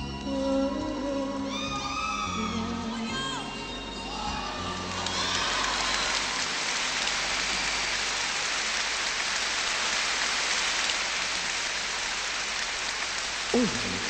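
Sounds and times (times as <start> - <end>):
concert audience applauding: 4.2 - 14.0.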